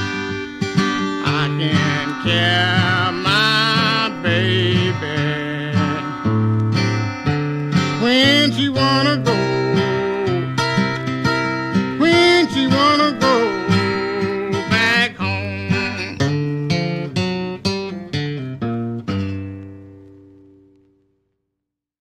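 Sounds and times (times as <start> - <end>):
person singing: 0.0 - 6.5, 7.8 - 11.0, 11.9 - 16.4
fingerpicked acoustic blues guitar: 0.0 - 21.1.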